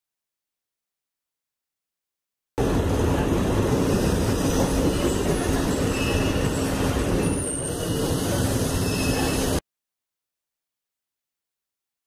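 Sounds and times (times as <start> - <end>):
train wheels rumbling on rail: 2.6 - 9.6
faint high squeals: 4.2 - 9.6.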